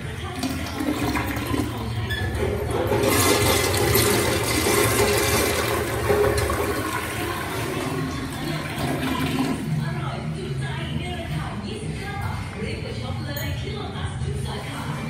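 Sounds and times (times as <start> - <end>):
toilet flushing: 0.0 - 9.8.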